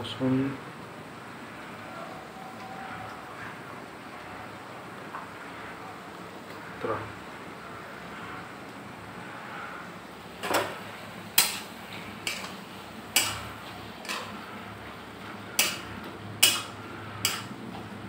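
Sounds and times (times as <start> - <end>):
metal spatula scraping a steel pan: 15.6 - 17.5.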